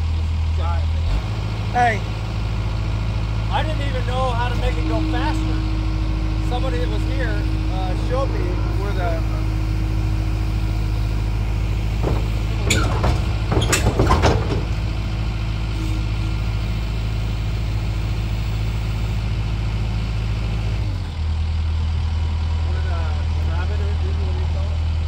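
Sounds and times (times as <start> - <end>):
diesel engine idling: 0.0 - 25.0
knocks and rattles: 11.3 - 15.6.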